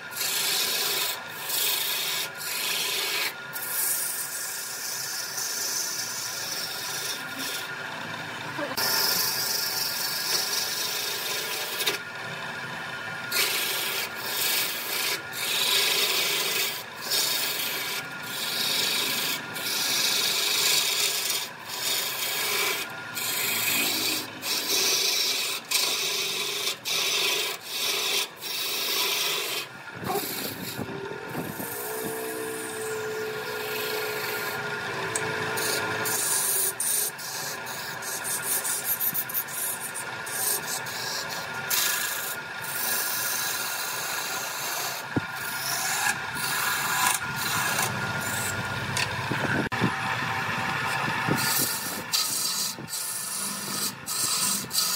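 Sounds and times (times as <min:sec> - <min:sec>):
lathe tool scraping wood: 0:00.0 - 0:54.9
steady whine: 0:29.7 - 0:36.7, 0:45.0 - 0:52.9.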